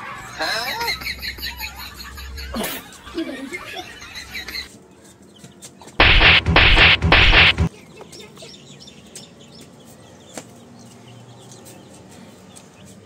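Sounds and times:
baby chicks peeping: 0.1 - 13.0
loud burst of harsh noise: 6.0 - 7.7.

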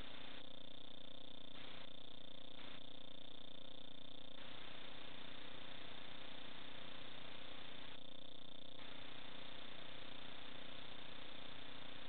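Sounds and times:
electronic hum with constant tones: 0.0 - 12.0
static hiss: 0.0 - 12.0.

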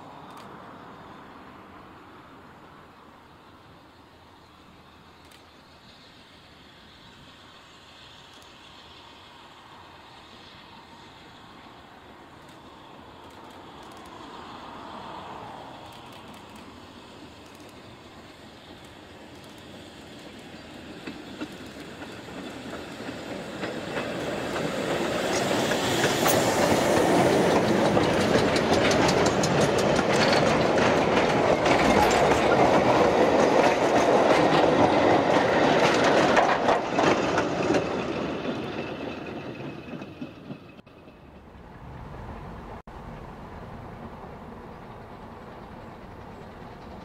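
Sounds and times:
steam train passing: 0.0 - 47.0
wheels clicking over rail joints: 11.4 - 41.9, 44.4 - 47.0.

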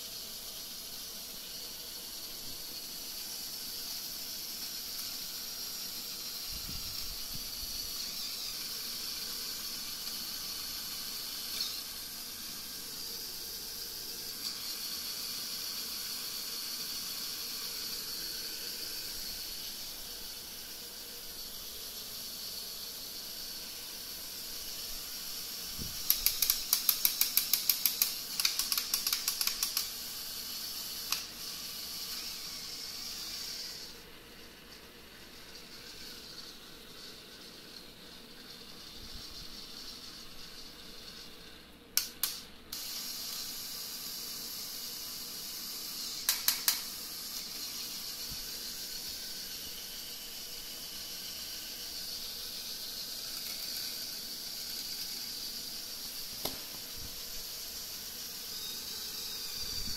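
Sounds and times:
electric motor whirring: 1.5 - 41.6, 42.8 - 59.9
sharp clicks: 26.0 - 29.9.

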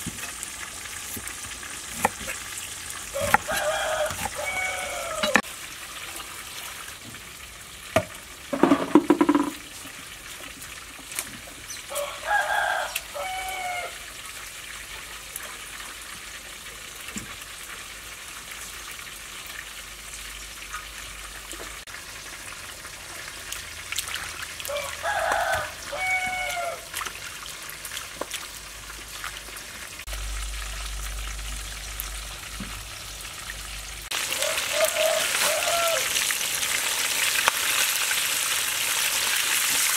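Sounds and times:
rooster crowing: 3.1 - 5.4, 11.9 - 14.0, 24.7 - 26.9, 34.2 - 36.2.

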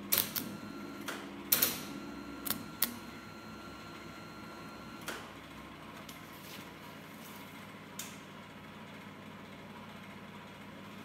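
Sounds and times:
welding arc crackling: 0.1 - 0.5
faint steady whine: 0.4 - 5.3.

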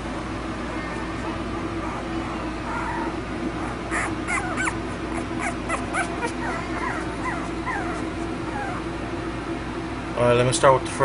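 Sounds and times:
puppies squeaking and whimpering: 0.6 - 9.2.

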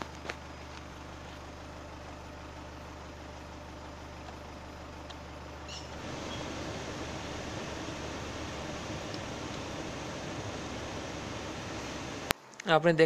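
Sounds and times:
air conditioning blower hissing: 0.0 - 12.3
car engine idling: 0.0 - 12.3.

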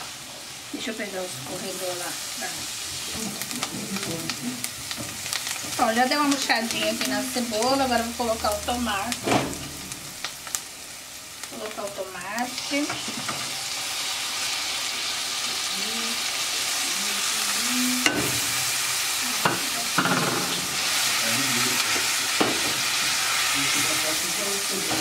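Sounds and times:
vegetables frying in oil: 0.0 - 25.0
knocks against pan: 19.4 - 20.7.

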